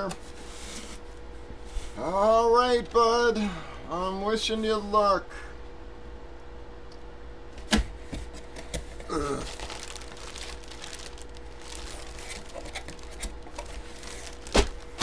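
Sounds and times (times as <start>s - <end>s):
plastic bag crinkling: 9.1s - 15.0s.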